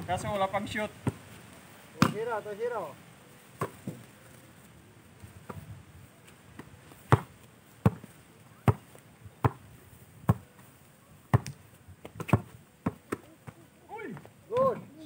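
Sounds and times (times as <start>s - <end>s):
basketball bouncing: 7.1s - 8.1s, 9.4s - 9.6s, 11.3s - 13.6s.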